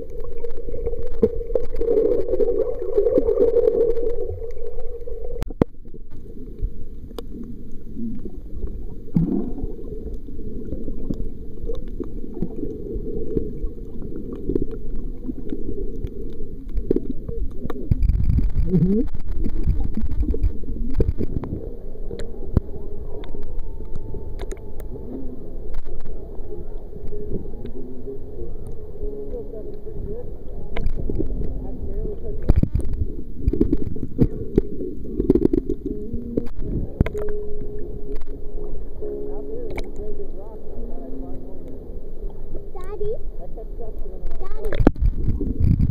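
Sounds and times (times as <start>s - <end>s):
underwater rush of water: 0.0s - 45.9s
sharp underwater clicks: 14.3s - 24.9s, 32.4s - 37.4s, 39.7s - 40.2s, 44.2s - 45.9s.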